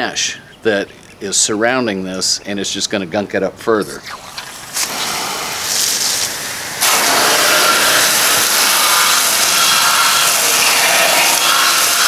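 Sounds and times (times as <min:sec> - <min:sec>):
hose water spraying on fan unit: 0:04.4 - 0:12.0.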